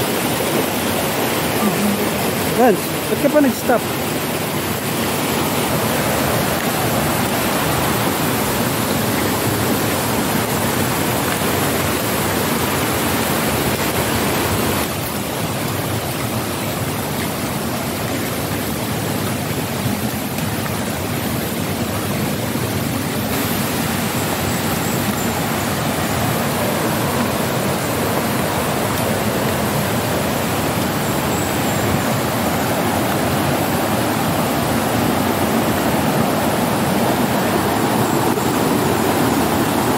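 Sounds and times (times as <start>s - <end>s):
stream flowing over rocks: 0.0s - 39.9s.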